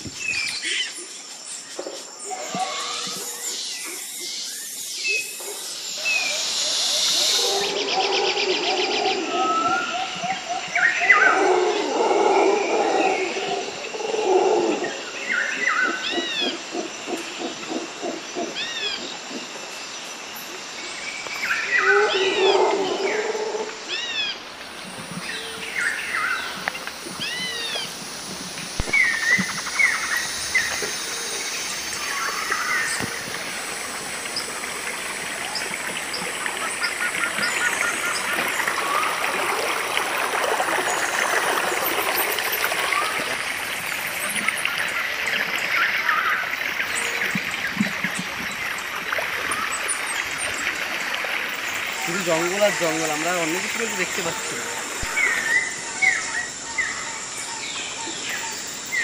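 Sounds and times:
birds chirping: 23.9 - 39.4, 40.8 - 59.0.

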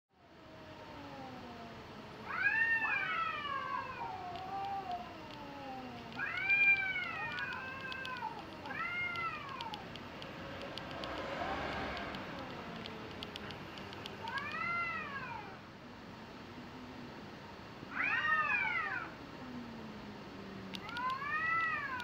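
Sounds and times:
cats yowling: 0.3 - 9.9, 14.2 - 15.6, 17.9 - 19.8, 20.8 - 22.0.

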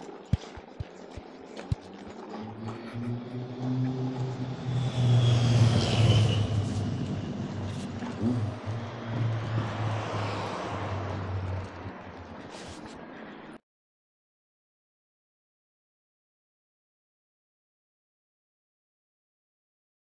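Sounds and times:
low engine hum: 0.4 - 13.0
car passing: 2.0 - 13.4.

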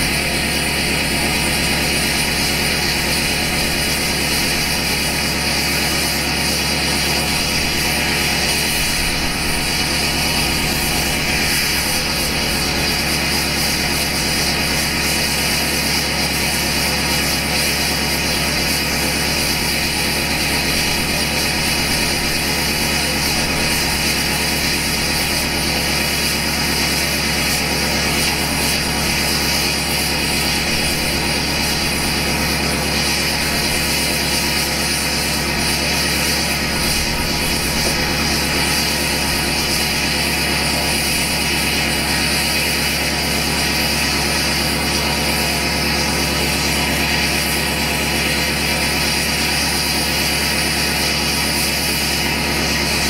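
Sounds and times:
diesel truck idling unmuffled: 0.0 - 15.7.

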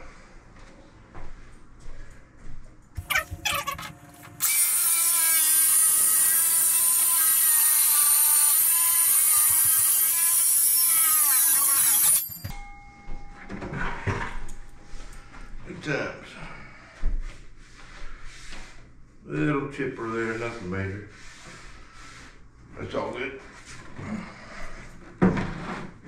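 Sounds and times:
circular saw cutting: 4.4 - 12.5.

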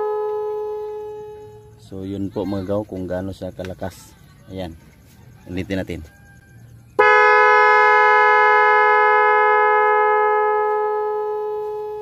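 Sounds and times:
electric horns blasting: 0.0 - 2.4, 6.9 - 12.0.

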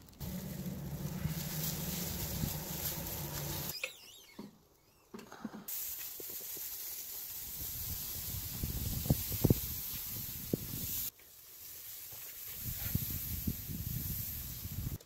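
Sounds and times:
background hum: 0.0 - 3.7
pressure sprayer hissing: 0.2 - 3.7.

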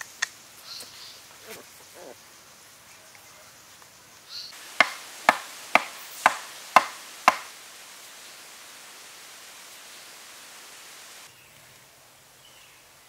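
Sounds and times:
sharp knocks on wood: 4.8 - 7.5.

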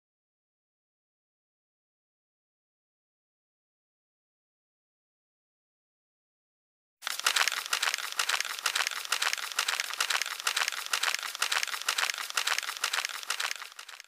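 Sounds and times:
dense crackling crinkling noise: 7.0 - 14.0.

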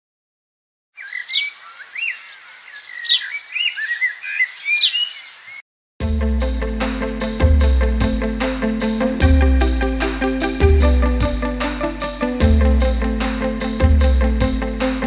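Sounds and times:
birds chirping: 1.0 - 5.6
music: 6.0 - 15.0.

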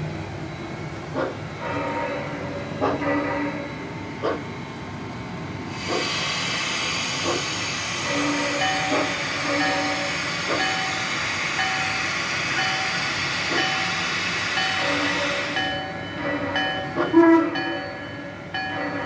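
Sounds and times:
model steam locomotive hiss: 5.7 - 15.9.

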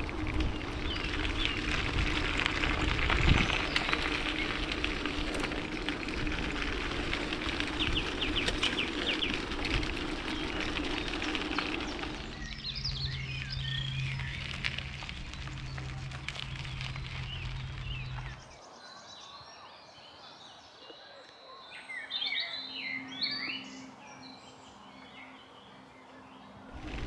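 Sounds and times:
rapid bicycle ticking: 0.0 - 18.4
bicycle wind and tyre noise: 0.0 - 20.6, 22.2 - 27.0
birds chirping: 0.0 - 27.0.

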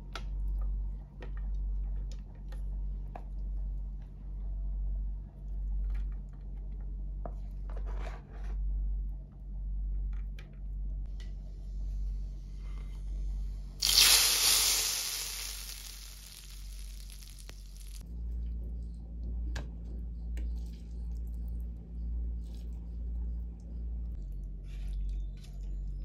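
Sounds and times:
hot oil sizzling: 13.8 - 18.0.

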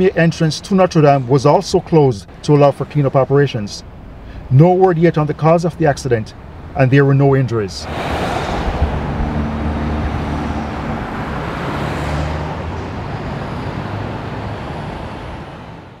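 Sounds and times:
street traffic: 0.0 - 16.0
vehicle engine running low: 7.8 - 15.1.

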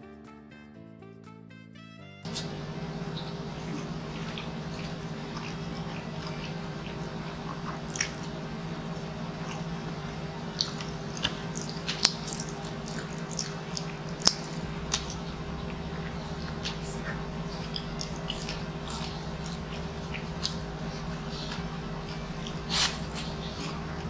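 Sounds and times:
low hum: 2.3 - 24.0
man chewing food: 2.3 - 24.0
wet lip smacks: 2.3 - 24.0
finger-licking smacks: 10.5 - 23.8.

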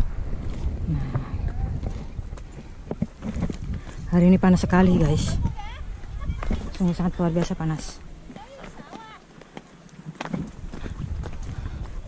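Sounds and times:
low rumble: 0.0 - 6.9
footsteps on rocky trail: 0.4 - 12.0.

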